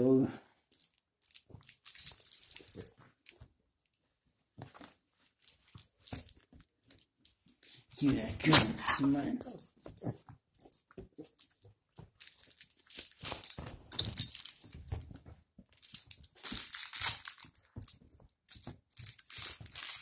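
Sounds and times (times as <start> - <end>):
dog play sounds: 8.1 - 20.0.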